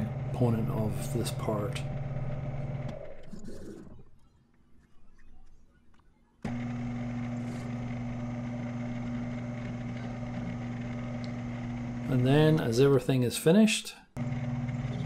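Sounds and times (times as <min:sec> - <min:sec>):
lathe spindle motor humming: 0:00.0 - 0:03.2, 0:06.5 - 0:12.6, 0:14.2 - 0:15.0.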